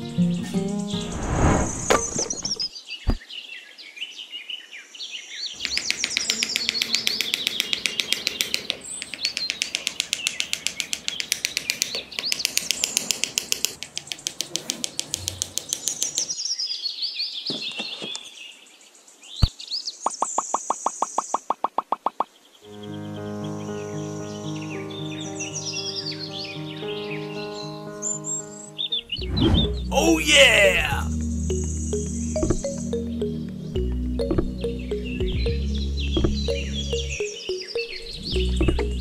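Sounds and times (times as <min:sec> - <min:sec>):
small birds chirping: 0:02.1 - 0:23.1, 0:24.0 - 0:39.0
fast even clicking: 0:05.6 - 0:16.3.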